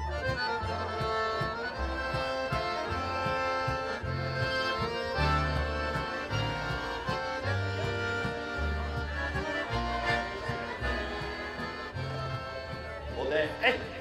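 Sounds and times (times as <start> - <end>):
held chords over bass line: 0.0 - 14.0.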